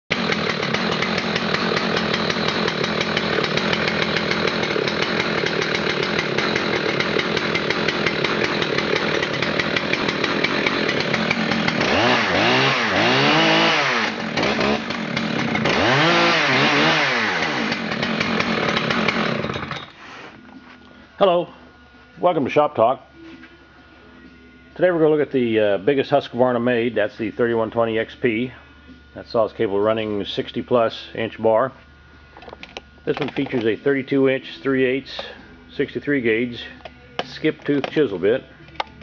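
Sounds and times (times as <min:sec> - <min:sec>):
chainsaw idling and revving: 0:00.1 - 0:20.0.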